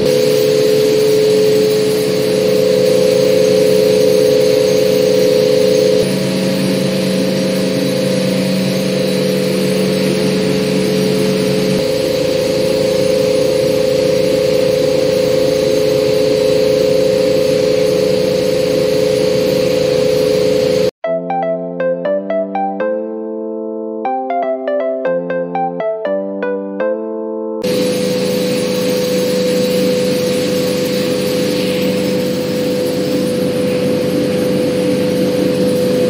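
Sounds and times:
machine motor humming: 0.0s - 20.9s.

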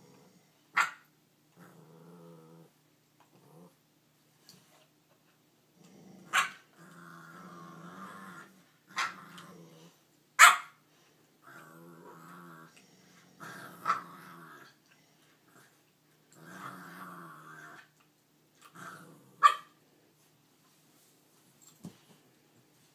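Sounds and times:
dog barking: 0.8s - 1.0s, 6.3s - 6.6s, 10.4s - 10.8s, 19.4s - 19.7s
dogs growling: 1.6s - 3.8s, 5.7s - 10.0s, 11.4s - 18.0s, 18.6s - 19.5s.

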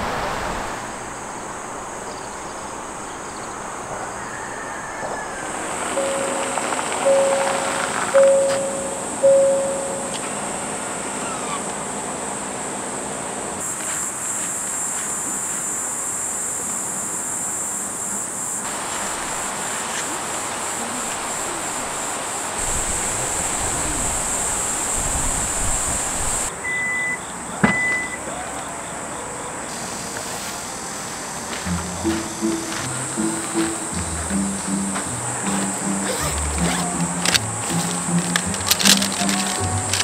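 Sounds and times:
crickets chirping: 0.0s - 40.0s
short high beep: 6.0s - 10.3s.

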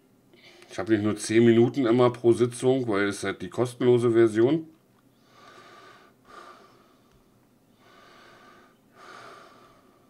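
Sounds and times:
man breathing softly: 0.3s - 0.7s, 5.1s - 10.0s.

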